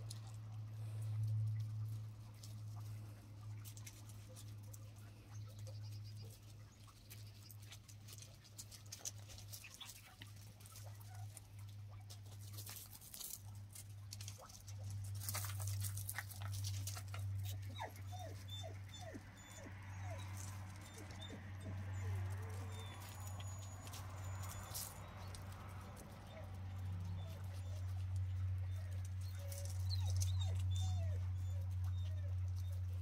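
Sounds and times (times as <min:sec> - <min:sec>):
paws scampering on gravel: 0:00.0 - 0:33.0
puppy yips: 0:17.4 - 0:33.0.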